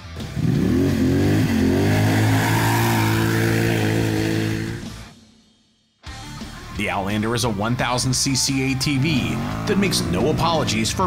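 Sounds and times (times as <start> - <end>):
atv engine revving: 0.0 - 5.1, 8.5 - 11.0.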